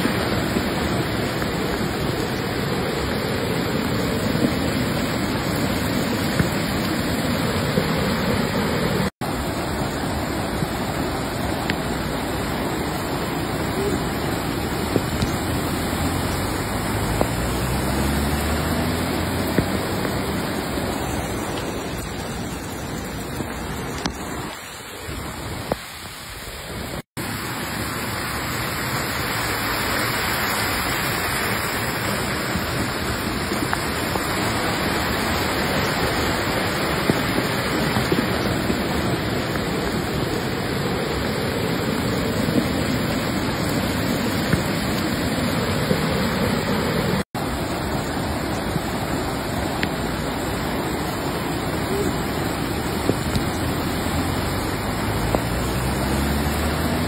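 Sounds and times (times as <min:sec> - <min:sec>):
floodwater rushing: 0:00.0 - 0:57.0
car engine revving: 0:15.3 - 0:21.2, 0:53.6 - 0:57.0.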